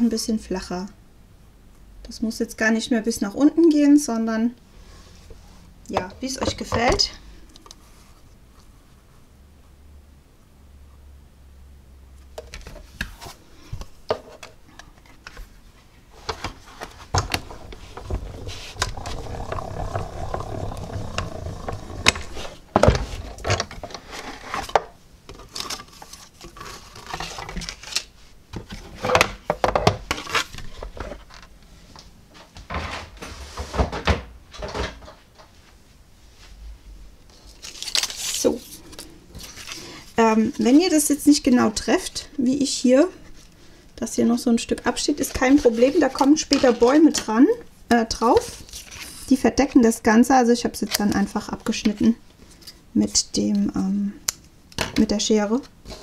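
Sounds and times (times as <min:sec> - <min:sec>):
machine grinding: 0:17.5 - 0:23.8
paper rustling: 0:37.3 - 0:40.1, 0:45.2 - 0:47.2, 0:48.4 - 0:49.3.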